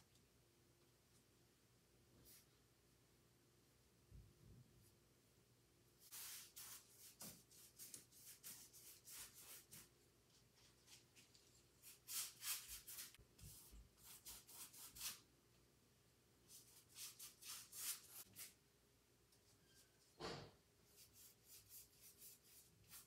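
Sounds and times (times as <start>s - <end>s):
paintbrush swishing on canvas: 6.0s - 15.2s.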